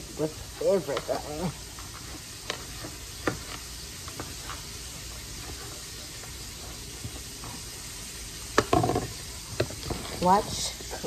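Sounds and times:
vegetables sizzling in a pan: 0.0s - 11.0s.

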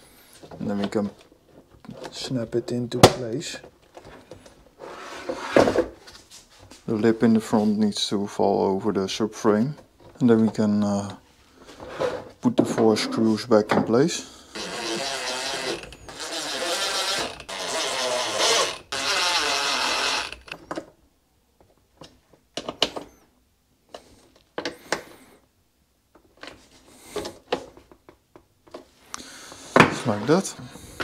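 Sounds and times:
cordless screwdriver whirring: 14.5s - 20.6s.

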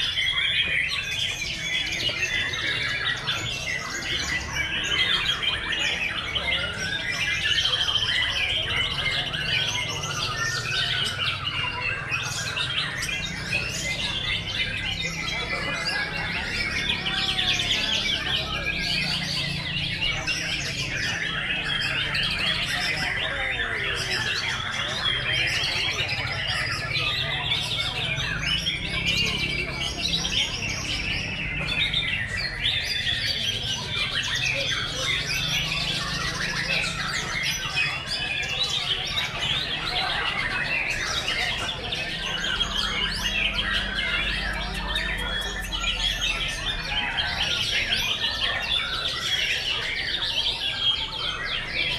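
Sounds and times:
birds whistling and trilling: 0.0s - 51.9s.

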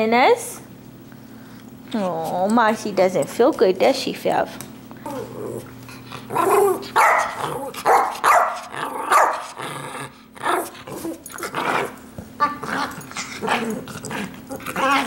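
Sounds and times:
dog growling: 5.0s - 7.9s, 8.6s - 15.0s
small dog barking: 6.9s - 9.5s.

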